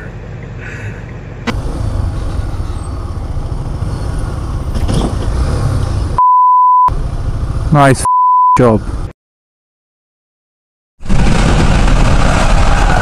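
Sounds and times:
vehicle engine and road rumble: 0.0s - 9.1s
censor bleep tone: 6.2s - 6.9s, 8.0s - 8.6s.

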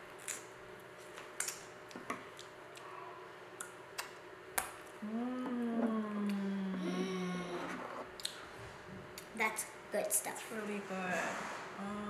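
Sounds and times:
person humming mmm: 5.0s - 8.0s.

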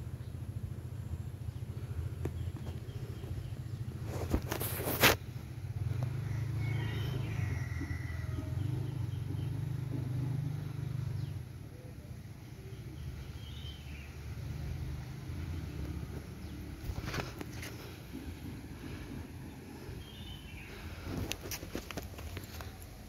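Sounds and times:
steady low rumble: 0.0s - 6.5s, 14.0s - 23.0s.

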